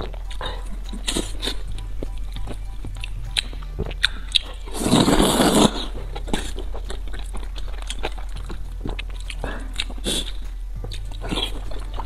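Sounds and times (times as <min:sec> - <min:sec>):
wet chewing and mouth clicks: 0:00.0 - 0:12.0
noodle slurp: 0:04.4 - 0:06.7.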